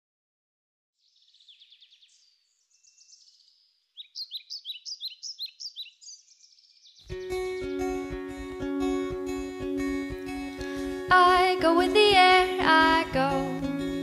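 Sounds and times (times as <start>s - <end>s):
songbirds chirping: 1.0s - 14.0s
acoustic guitar and instruments playing: 7.0s - 14.0s.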